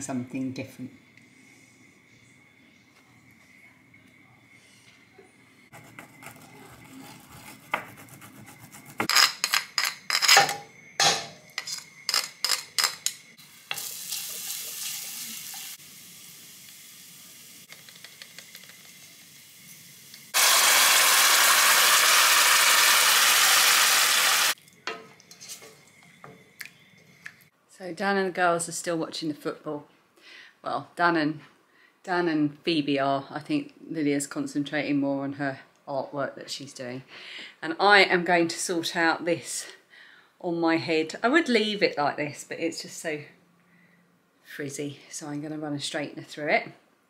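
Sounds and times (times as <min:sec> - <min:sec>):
frying sizzle: 0:13.4 - 0:24.6.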